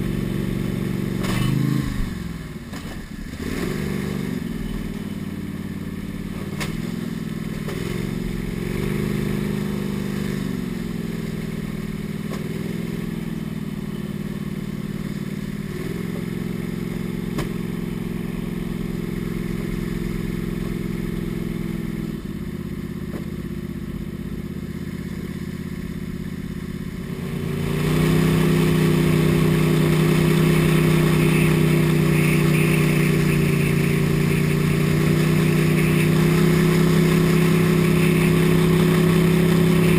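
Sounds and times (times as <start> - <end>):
boat motor running: 28.2 - 39.9.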